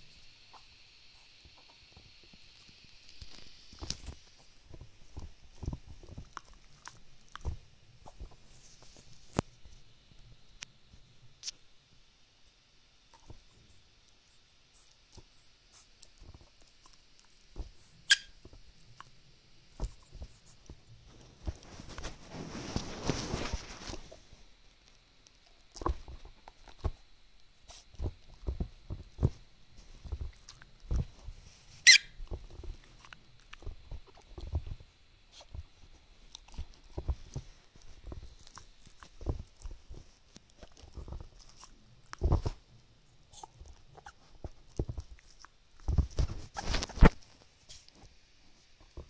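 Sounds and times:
toy squeak: 0:18.1 - 0:18.3, 0:31.8 - 0:32.2.

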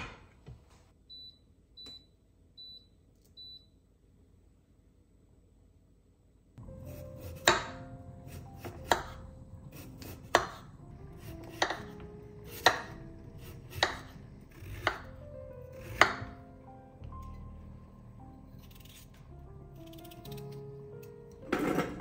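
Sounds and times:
soft background music: 0:06.6 - 0:22.0.

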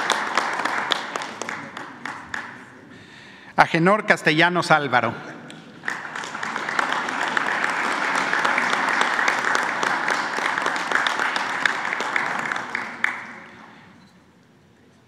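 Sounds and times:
audience applauding: 0:00.0 - 0:02.7, 0:05.8 - 0:14.0.

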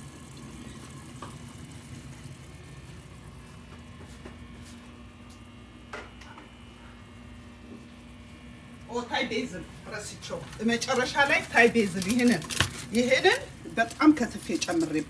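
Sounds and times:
curry bubbling in pot: 0:00.0 - 0:03.8
steady low hum: 0:00.0 - 0:15.0.

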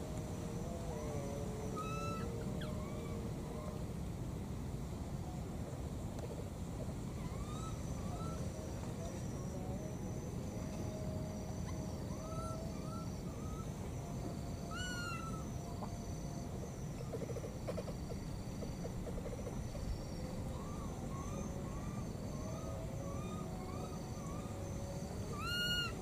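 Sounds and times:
baby monkey calls: 0:25.3 - 0:26.0.

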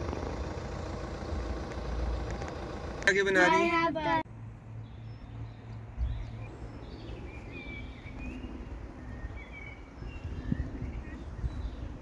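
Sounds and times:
low steady rumble: 0:00.0 - 0:04.7.

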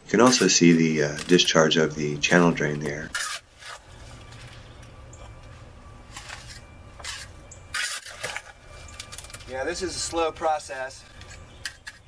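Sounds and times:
low steady hum: 0:00.0 - 0:12.0
trowel scraping wet concrete: 0:00.1 - 0:01.6, 0:03.0 - 0:03.8, 0:06.2 - 0:08.5.

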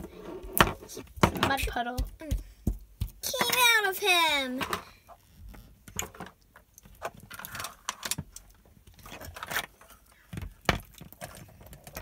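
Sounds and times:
plastic toys knocking on wooden floor: 0:00.5 - 0:03.7.

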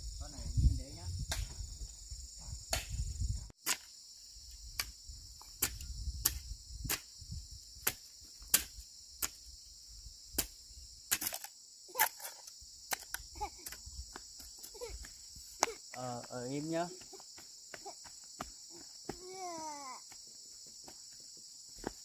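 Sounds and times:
crickets trilling: 0:00.0 - 0:22.0.

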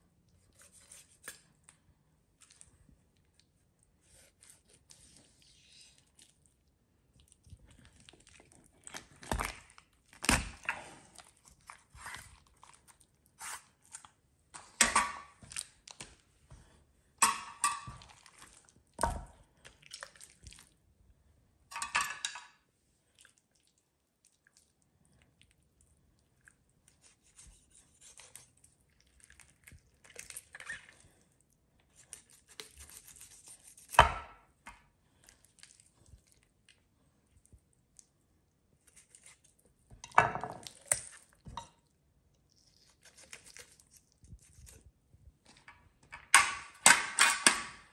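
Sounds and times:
skin tearing: 0:42.5 - 0:44.8
knife crunching through bone: 0:42.7 - 0:44.8.

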